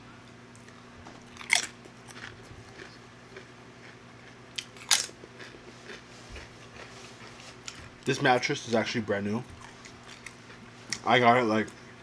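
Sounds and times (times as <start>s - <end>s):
crunching chips: 0.6s - 8.8s.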